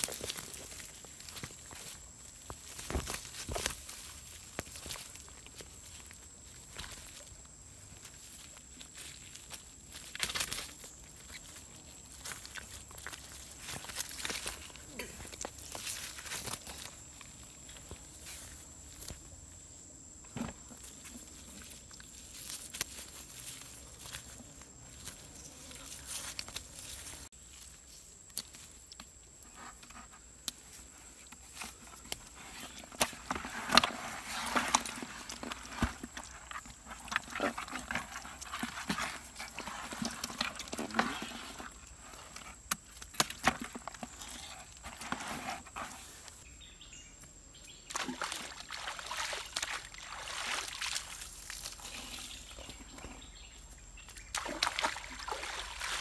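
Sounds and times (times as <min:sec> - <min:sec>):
water sloshing and splashing: 0:47.9 - 0:52.4, 0:54.3 - 0:56.0.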